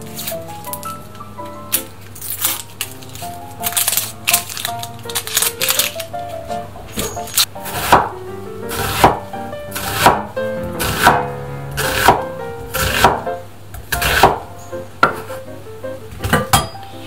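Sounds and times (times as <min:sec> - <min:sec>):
soft background music: 0:00.0 - 0:17.0
knife slicing onion on board: 0:07.6 - 0:08.1, 0:08.7 - 0:11.2, 0:11.8 - 0:13.2, 0:13.9 - 0:14.4.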